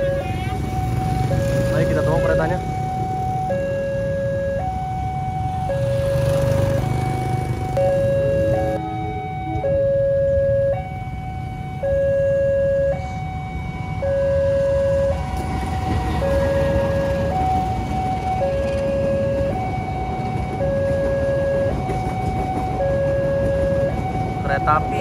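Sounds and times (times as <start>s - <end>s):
diesel locomotive passing: 0.0s - 25.0s
two-tone level crossing alarm: 0.0s - 25.0s
train rumble: 14.7s - 25.0s.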